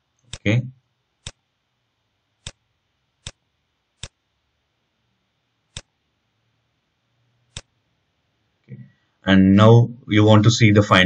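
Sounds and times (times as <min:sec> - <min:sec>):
computer mouse clicks: 0:00.2 - 0:00.5, 0:01.2 - 0:01.4, 0:02.4 - 0:02.6, 0:03.2 - 0:03.4, 0:04.0 - 0:04.2, 0:05.7 - 0:05.9, 0:07.5 - 0:07.7.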